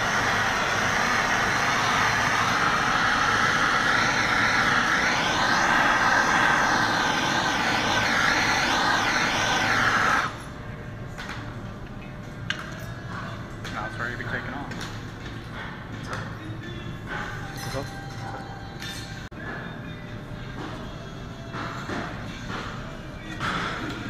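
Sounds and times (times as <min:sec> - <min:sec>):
gas torch hissing: 0:00.0 - 0:10.5.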